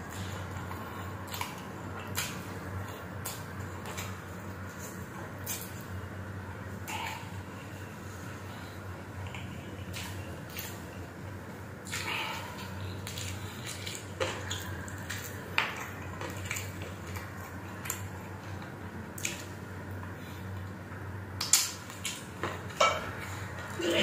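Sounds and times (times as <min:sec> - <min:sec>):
wet chewing and lip-smacking: 0:00.0 - 0:06.0, 0:06.8 - 0:23.8.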